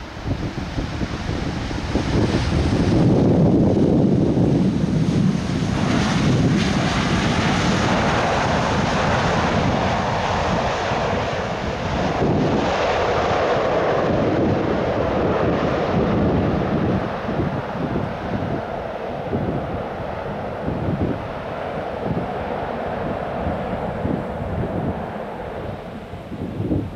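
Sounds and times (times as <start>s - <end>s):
jet engine rumble: 0.0s - 26.9s
wind buffeting microphone: 0.0s - 26.9s.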